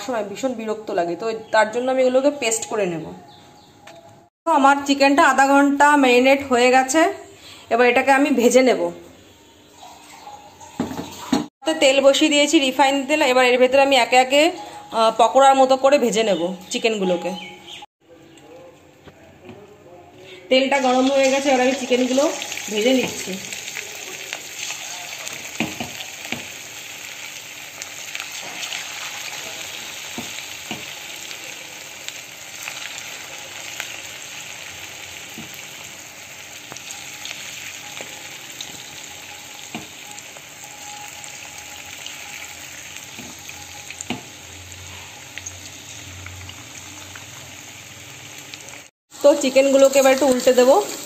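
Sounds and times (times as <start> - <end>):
chicken deep-frying in oil: 7.9 - 17.8, 20.6 - 51.0
oil crackles and pops: 21.3 - 34.4, 36.6 - 44.4.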